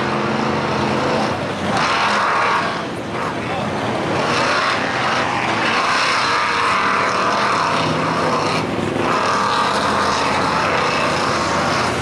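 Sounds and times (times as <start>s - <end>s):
tires flinging mud and water: 0.0s - 12.0s
truck engine revving hard: 0.0s - 12.0s.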